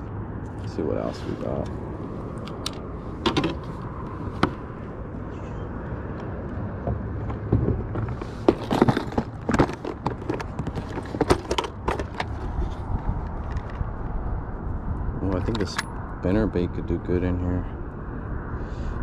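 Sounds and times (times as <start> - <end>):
plastic tackle box rattling: 8.4 - 12.4.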